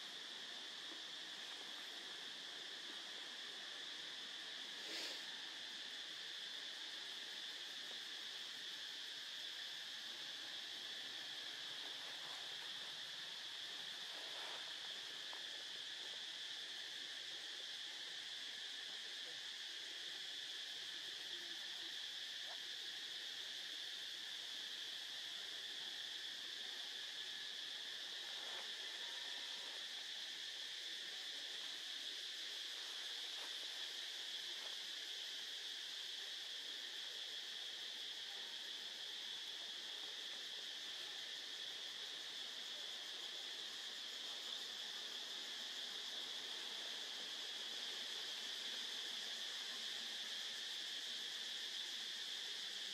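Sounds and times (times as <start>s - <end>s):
insect chorus drone: 0.0s - 52.9s.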